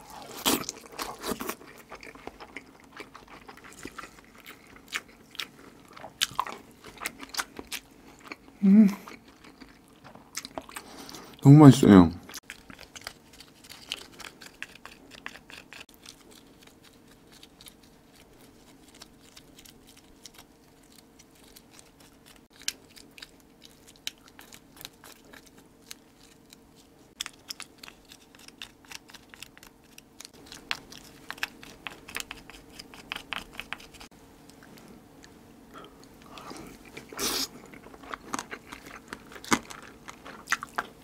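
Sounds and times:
chewing and wet mouth sounds: 0.0 - 11.4, 12.2 - 41.0
faint steady hum: 0.0 - 41.0
crisp clicks and crunches: 12.4 - 34.7, 36.8 - 41.0.

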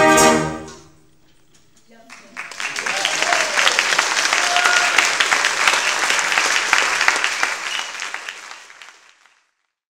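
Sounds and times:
audience applauding: 2.1 - 9.7.

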